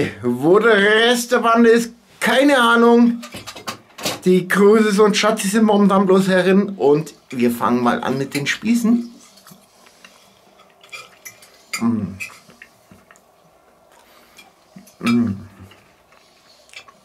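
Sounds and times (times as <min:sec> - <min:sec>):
quiet chewing: 0:09.1 - 0:17.0.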